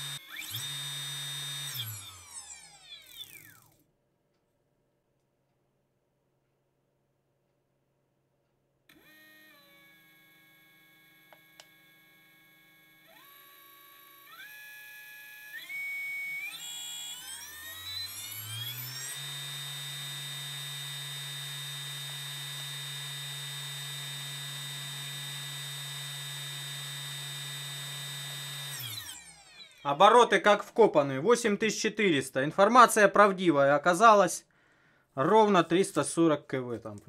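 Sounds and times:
electric motor whining: 0:00.0 - 0:03.8, 0:08.9 - 0:30.4.

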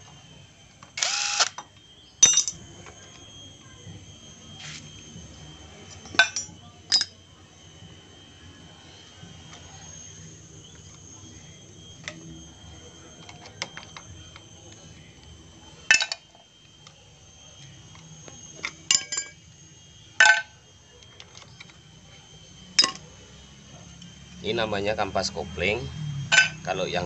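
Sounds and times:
ringing metal clanks: 0:02.2 - 0:02.6, 0:06.1 - 0:07.2, 0:18.9 - 0:19.4, 0:26.3 - 0:26.7
metal parts and tools clinking: 0:02.2 - 0:03.2, 0:05.9 - 0:07.2, 0:18.0 - 0:19.4, 0:22.8 - 0:23.0.

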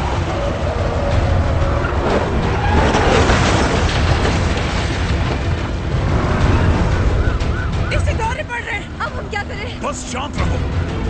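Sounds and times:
car engines running hard: 0:00.0 - 0:11.0
film music: 0:00.0 - 0:11.0
car crashing heavy impacts: 0:01.9 - 0:06.3.

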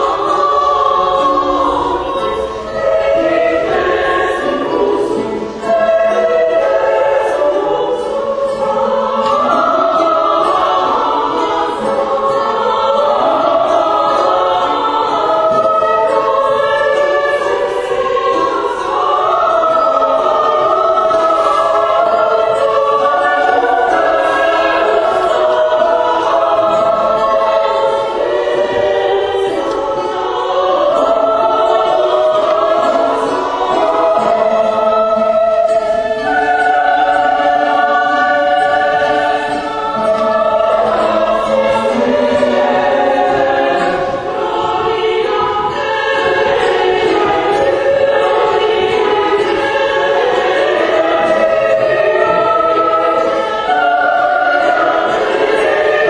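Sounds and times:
choir singing held notes: 0:00.0 - 0:56.0.

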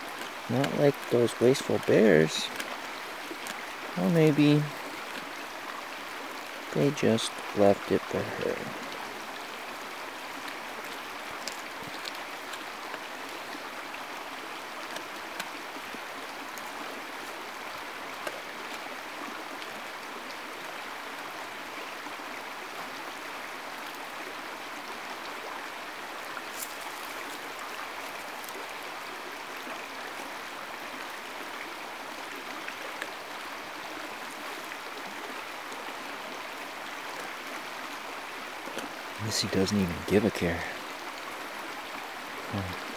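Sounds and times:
creek water rushing: 0:00.0 - 0:42.9.

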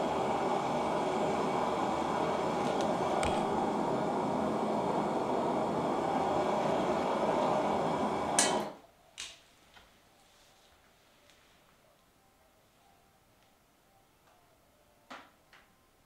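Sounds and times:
forge roaring: 0:00.0 - 0:08.8.

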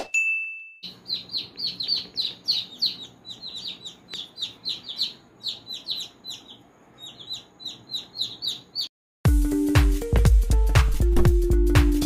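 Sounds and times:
baby chicks peeping: 0:00.8 - 0:08.9.

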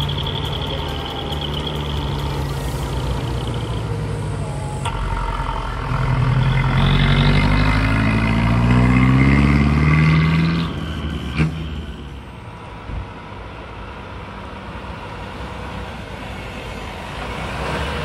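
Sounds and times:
truck engine revving: 0:00.0 - 0:12.1.

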